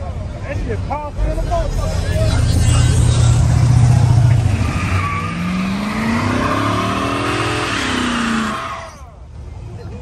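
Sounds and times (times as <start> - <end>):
car engine revving: 1.1 - 9.0
tire squeal: 1.8 - 9.2.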